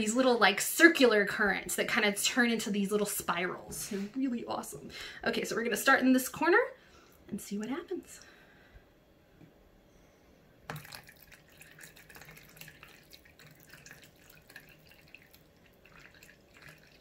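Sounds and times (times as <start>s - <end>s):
water trickling and splashing: 10.7s - 17.0s.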